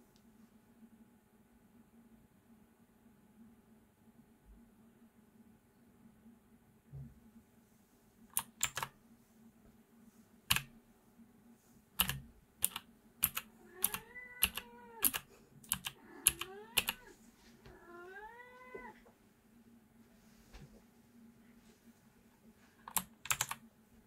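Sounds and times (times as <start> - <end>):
mechanical keyboard clicks: 8.4 - 8.9, 12.0 - 17.0, 22.9 - 23.6
drawn-out meows: 13.6 - 15.1, 16.0 - 19.0.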